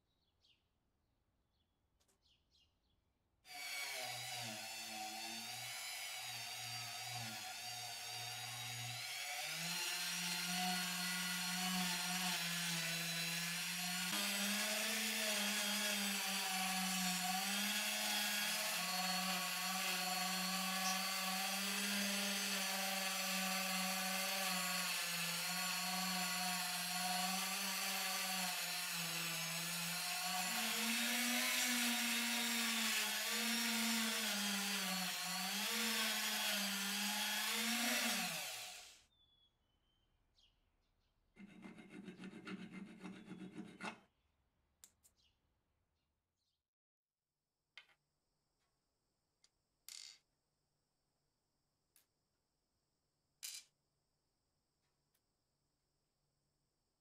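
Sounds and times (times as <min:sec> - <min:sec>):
rotary tool motor whine: 0:14.0 - 0:39.0.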